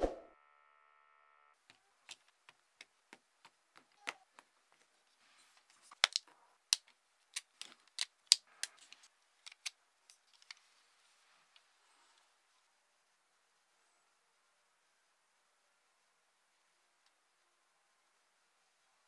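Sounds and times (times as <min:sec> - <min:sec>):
plastic parts clicking and snapping: 0:05.8 - 0:10.6.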